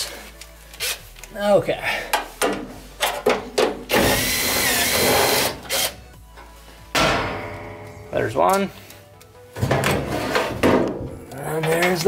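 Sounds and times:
cordless drill whining: 4.1s - 6.0s.

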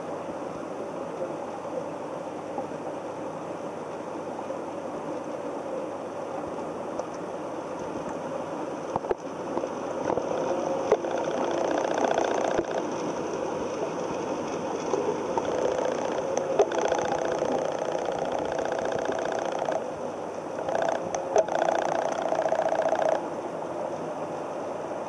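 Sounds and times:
underwater mechanical hum: 0.0s - 25.0s
underwater water noise: 0.0s - 25.0s
sharp clicks: 10.9s - 12.9s, 15.4s - 19.8s, 20.6s - 23.2s.

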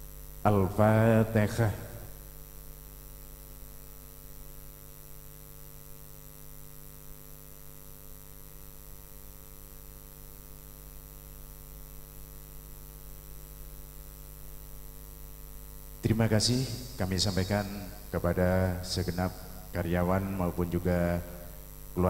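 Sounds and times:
electrical mains hum: 0.0s - 22.0s.

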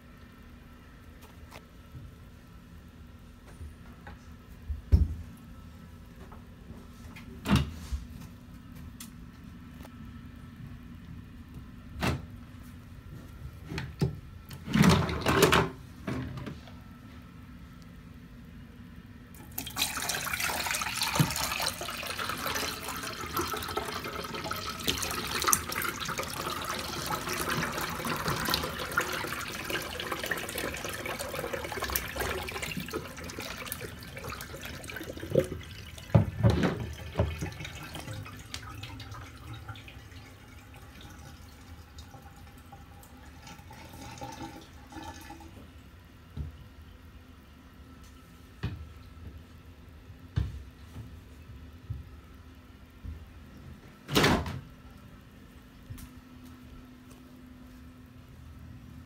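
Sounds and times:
toilet flush water rushing: 19.4s - 45.6s.

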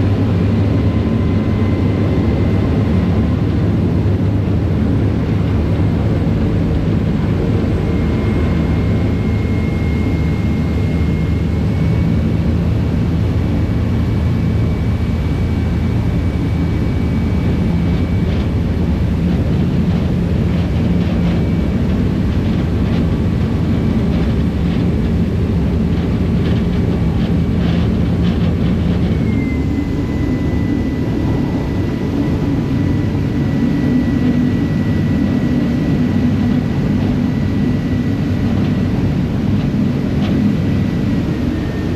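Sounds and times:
faint high whine: 0.0s - 41.9s
ferry diesel engines droning: 0.0s - 41.9s.

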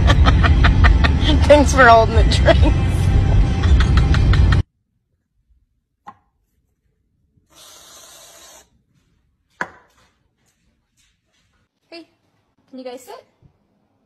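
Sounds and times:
music and voices: 1.2s - 4.6s
whipped cream can hissing: 7.5s - 8.7s.

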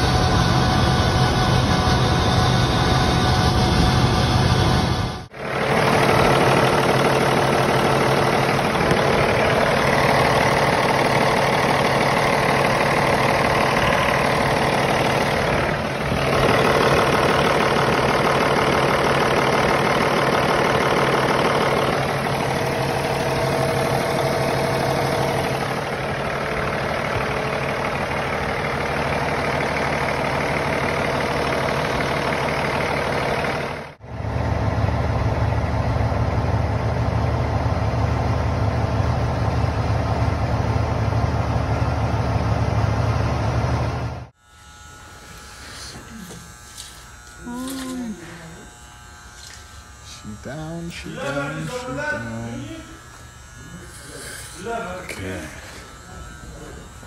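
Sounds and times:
diesel truck engine idling: 0.0s - 44.3s.

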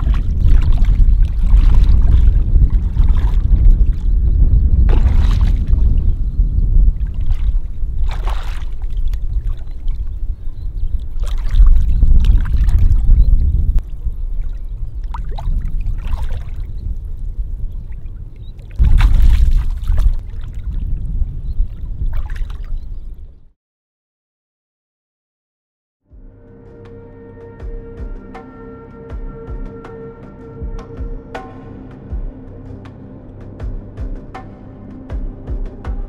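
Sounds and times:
water sloshing and splashing: 0.0s - 6.2s, 6.8s - 22.8s
heavy low rumble: 0.0s - 22.1s.

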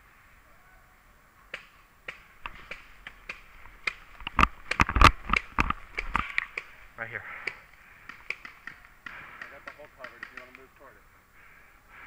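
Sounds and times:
paintball markers popping: 2.1s - 6.7s, 7.5s - 10.7s.

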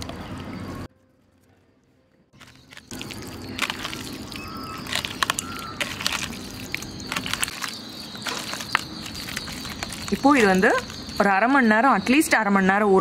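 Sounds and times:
wet squelching of meat: 2.4s - 11.2s.

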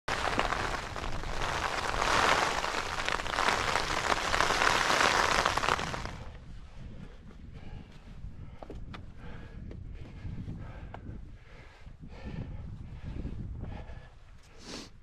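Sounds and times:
heavy rain on tent: 0.0s - 6.3s.

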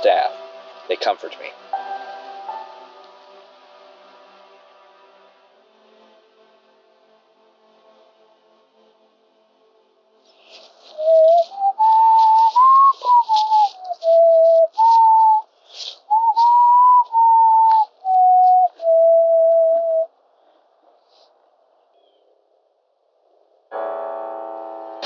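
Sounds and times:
person whistling a mournful tune: 10.9s - 20.1s.

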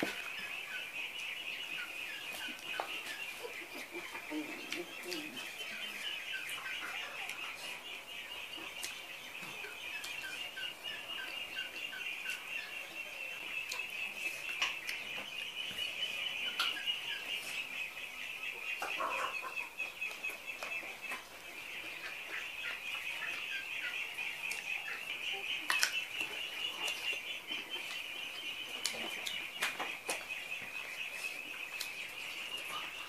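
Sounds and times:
chewing clicks and smacks: 25.6s - 27.1s.

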